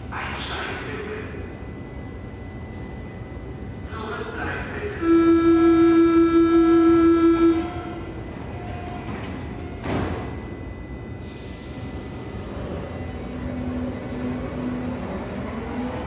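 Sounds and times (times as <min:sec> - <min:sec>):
train horn steady tone: 0:04.7 - 0:09.0.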